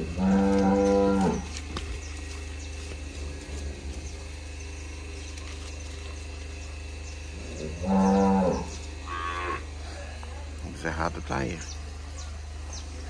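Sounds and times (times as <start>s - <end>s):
cow mooing: 0.0s - 1.6s, 7.5s - 9.8s
low hum: 0.0s - 13.0s.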